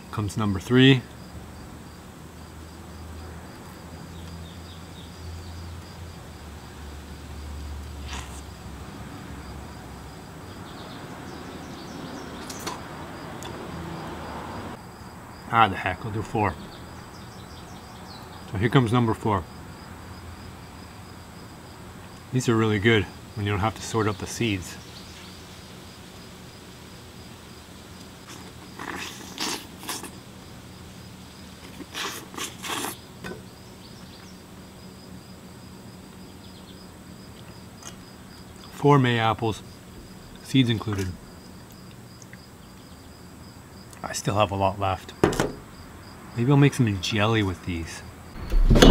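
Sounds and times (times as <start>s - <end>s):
insect chirping: 0.0s - 48.9s
outdoor background hiss: 0.0s - 48.9s
mouth noise eating: 8.0s - 8.6s, 28.2s - 30.2s, 31.6s - 33.1s.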